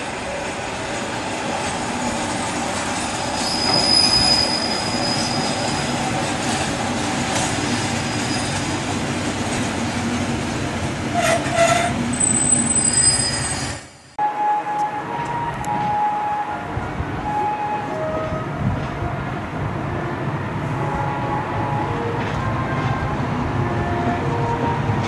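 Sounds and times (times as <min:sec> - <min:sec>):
diesel railcar braking: 0:00.0 - 0:19.3
high wheel squeals: 0:03.3 - 0:06.0, 0:08.0 - 0:08.7, 0:11.1 - 0:14.2.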